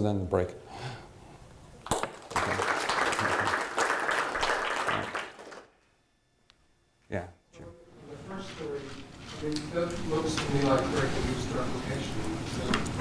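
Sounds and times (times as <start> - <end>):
audience applauding: 1.9 - 5.7.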